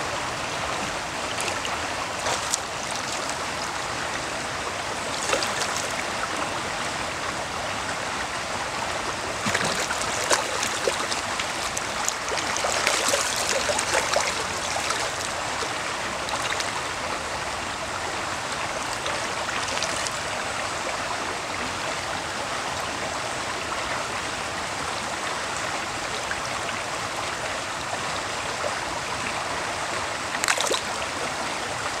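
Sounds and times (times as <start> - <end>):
stream running over gravel: 0.2 - 21.0, 29.9 - 32.0
fish splashing at surface: 2.2 - 3.4, 9.4 - 15.3.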